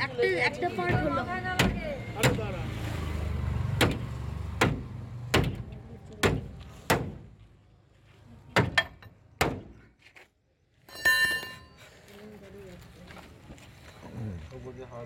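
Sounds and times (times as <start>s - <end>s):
metallic clatter ringing: 10.9s - 11.8s.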